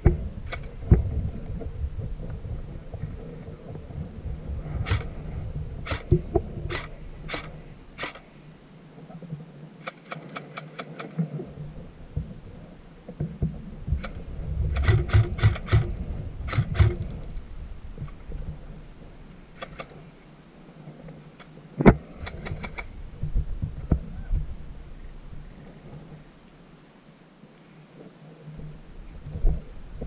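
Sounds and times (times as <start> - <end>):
wind rumble: 0.0 - 26.9, 28.4 - 30.0
airsoft guns firing bursts: 4.8 - 5.2, 5.9 - 8.2, 14.0 - 17.2.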